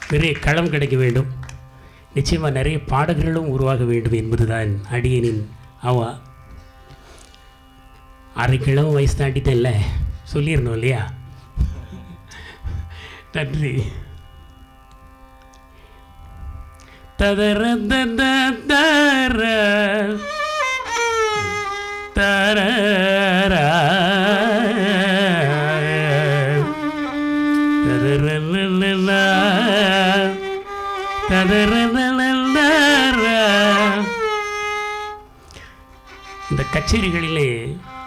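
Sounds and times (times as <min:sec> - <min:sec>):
man singing wordless melody: 0:17.2 - 0:20.6, 0:22.1 - 0:34.5.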